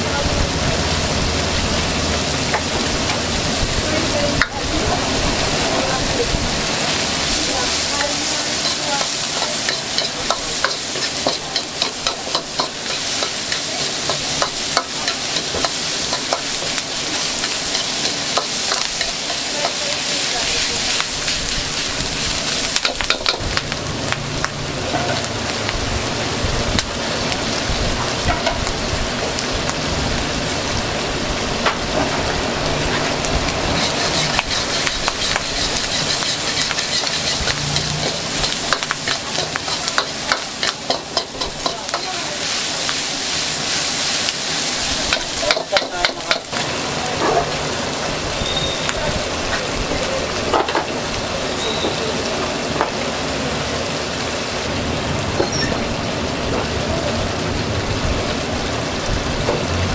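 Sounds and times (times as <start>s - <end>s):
food sizzling: 0.0s - 59.9s
metal utensil scraping pan: 7.5s - 20.0s, 33.7s - 42.6s.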